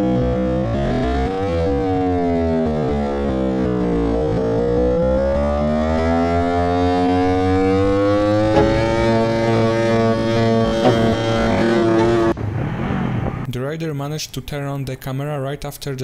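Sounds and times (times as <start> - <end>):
motorcycle engine revving: 0.0 - 12.4.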